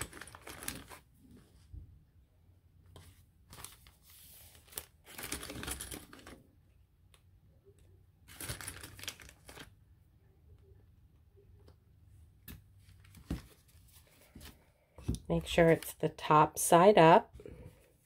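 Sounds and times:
paper pages rustling: 3.0 - 6.4.

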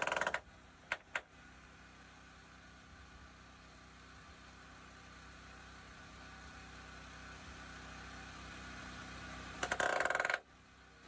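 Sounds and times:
pneumatic tool driving fasteners: 0.0 - 1.2, 9.6 - 10.4.

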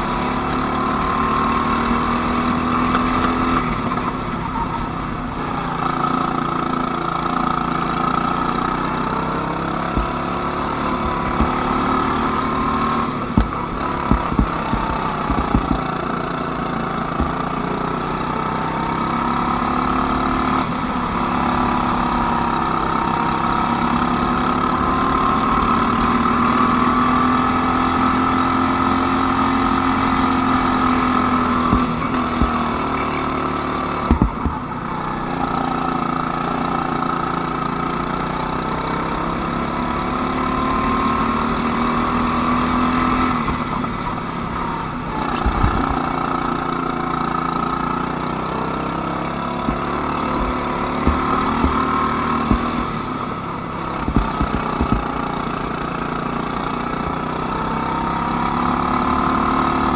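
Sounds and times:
go-kart engine running: 0.0 - 59.9
sharp knock: 13.4 - 15.9, 34.1 - 34.6, 49.7 - 52.9, 54.1 - 55.2.

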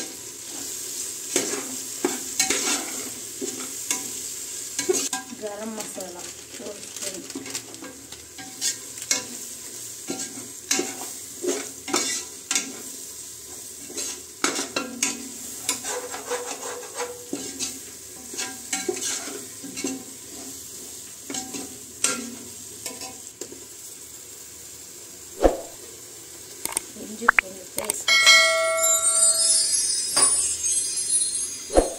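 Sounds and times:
frying masala sizzling: 0.0 - 31.9
metal spoon scraping a pot: 15.7 - 19.3.

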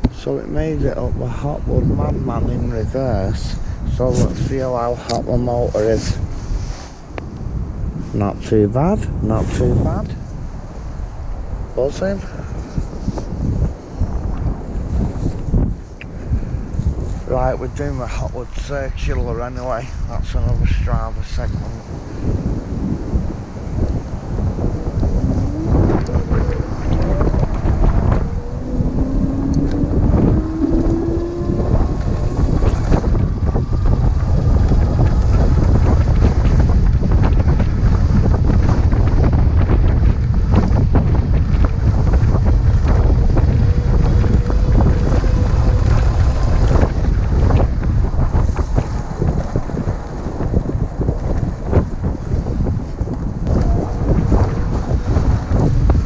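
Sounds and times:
wind buffeting microphone: 0.0 - 56.0
electric motor whine: 24.4 - 35.0.

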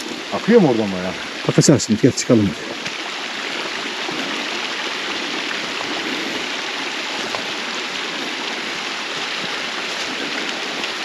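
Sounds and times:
stream rushing over rocks: 0.0 - 11.0.

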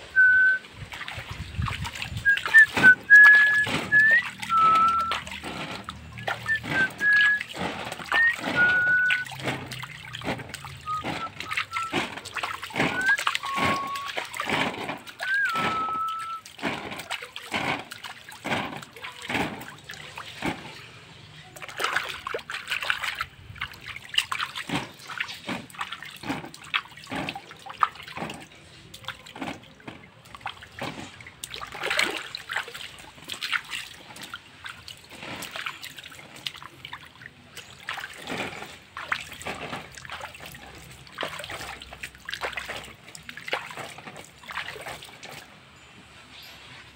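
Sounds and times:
water splashing on kite sail: 0.0 - 45.6
short whistled notes: 0.1 - 0.7, 2.2 - 5.3, 6.2 - 9.4, 10.8 - 12.0, 12.9 - 14.2, 15.2 - 16.4.

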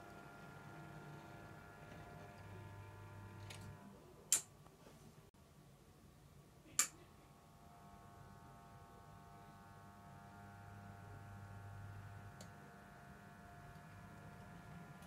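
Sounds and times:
model train motor whine: 0.0 - 3.8.

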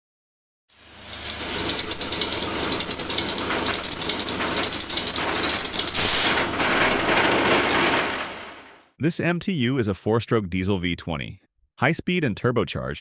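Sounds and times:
steady high whine: 0.8 - 6.2
diesel engine clattering: 1.6 - 8.6.

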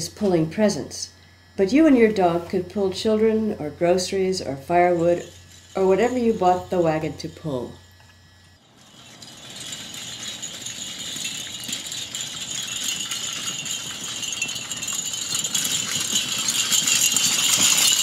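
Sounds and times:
wagon and harness rattling: 4.1 - 7.6, 8.6 - 18.0.

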